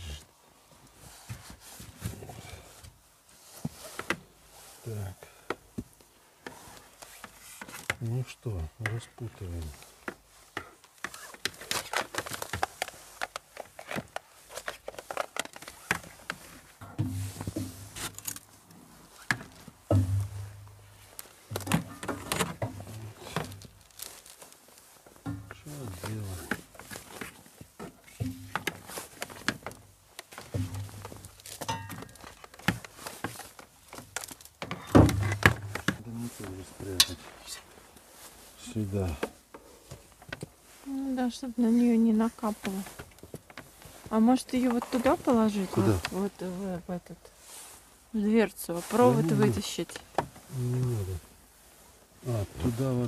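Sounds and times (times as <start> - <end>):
plastic garland clicking and rustling: 10.6 - 20.0, 21.1 - 27.6, 28.2 - 37.3
low steady hum: 19.9 - 23.6.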